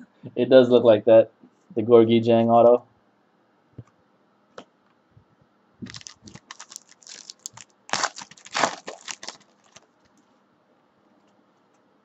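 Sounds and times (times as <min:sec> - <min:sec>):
foil pack crinkling and tearing: 0:05.8 - 0:10.2.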